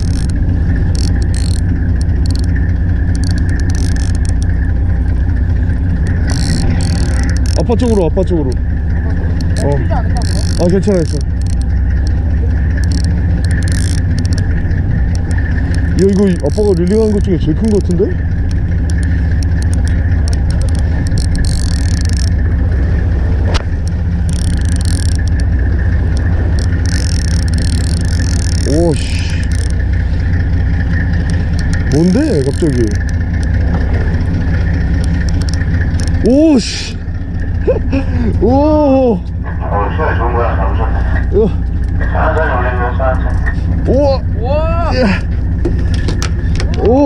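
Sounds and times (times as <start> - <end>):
fishing reel ticking: 0.0 - 4.7, 6.0 - 22.5, 23.7 - 37.0
boat engine idling: 0.0 - 47.0.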